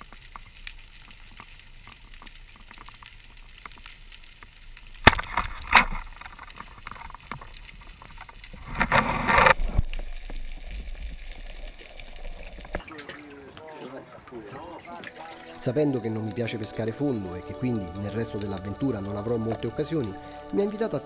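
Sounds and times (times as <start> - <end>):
underwater crackling: 0.0 - 21.0
speargun firing underwater: 5.0 - 6.0.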